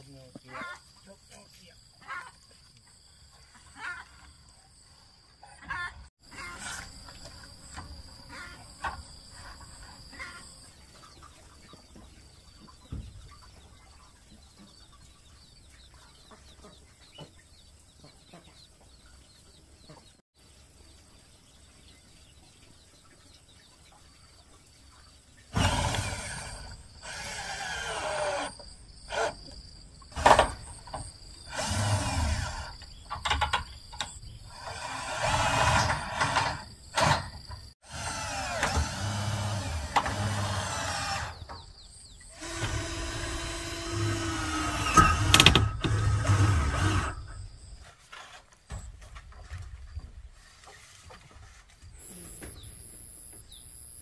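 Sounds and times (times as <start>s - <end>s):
hen clucking: 8.2s - 18.9s
drill driving screws into metal: 25.5s - 29.4s, 31.5s - 32.8s, 34.5s - 37.3s, 37.9s - 41.5s, 42.3s - 47.4s.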